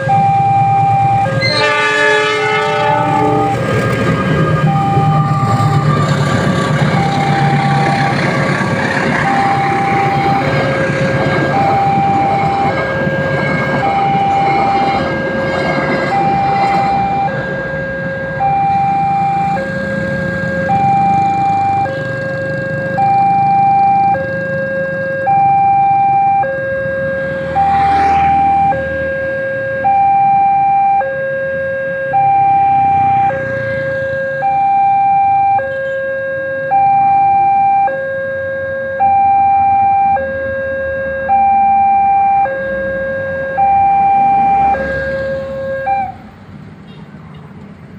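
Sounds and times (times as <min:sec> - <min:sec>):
level-crossing two-tone alarm: 0:00.0 - 0:46.2
train rumble: 0:00.7 - 0:18.4.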